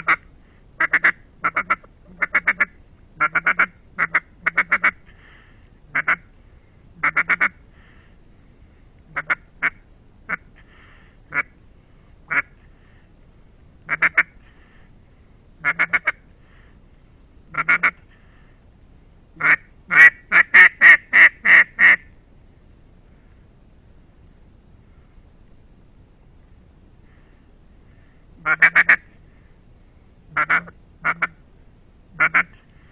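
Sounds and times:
duck call quacks: 0:00.0 - 0:00.2, 0:00.8 - 0:05.0, 0:05.9 - 0:06.3, 0:07.0 - 0:07.6, 0:09.1 - 0:10.5, 0:11.3 - 0:11.6, 0:12.3 - 0:12.6, 0:13.9 - 0:14.4, 0:15.6 - 0:16.2, 0:17.5 - 0:18.0, 0:19.4 - 0:22.1, 0:28.4 - 0:29.1, 0:30.3 - 0:31.4, 0:32.2 - 0:32.6.

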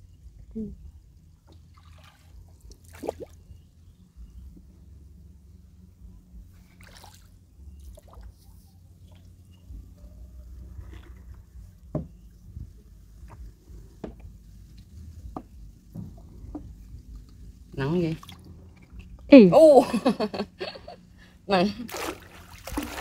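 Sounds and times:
low steady rumble: 0:00.0 - 0:23.0
water dripping and splashing: 0:01.4 - 0:03.4, 0:18.0 - 0:19.3, 0:21.9 - 0:23.0.

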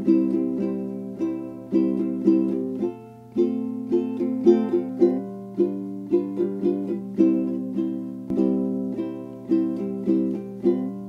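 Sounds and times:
plucked string instrument tune: 0:00.0 - 0:11.0.

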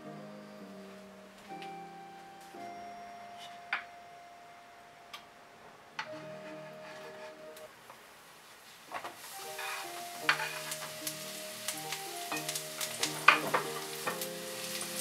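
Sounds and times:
soft background music: 0:00.0 - 0:07.9, 0:09.2 - 0:15.0
mushrooms sizzling in oil: 0:08.8 - 0:15.0.

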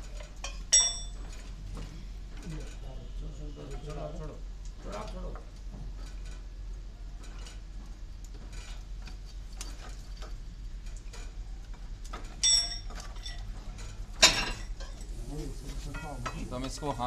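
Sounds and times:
crowbars clinking and scraping metal: 0:00.0 - 0:01.6, 0:08.4 - 0:17.0.

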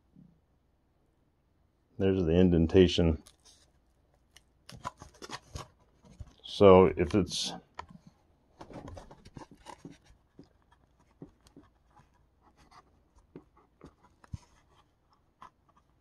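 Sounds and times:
fingers scratching and ticking: 0:03.2 - 0:08.0, 0:08.8 - 0:16.0
rustling: 0:03.2 - 0:16.0.

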